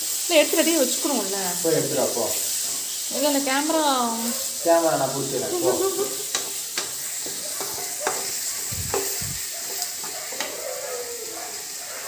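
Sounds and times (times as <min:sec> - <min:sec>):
vegetables sizzling in oil: 0:00.0 - 0:12.0
spatula scraping pan: 0:04.6 - 0:10.7.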